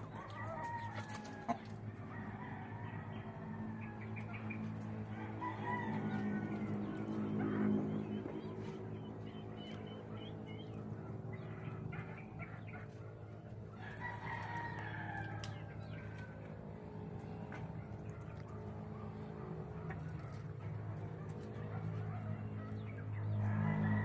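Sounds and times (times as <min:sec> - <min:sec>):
rooster crowing: 0:00.0 - 0:04.2, 0:04.9 - 0:07.2, 0:13.7 - 0:16.4, 0:23.2 - 0:24.0
steady low hum: 0:00.0 - 0:24.0.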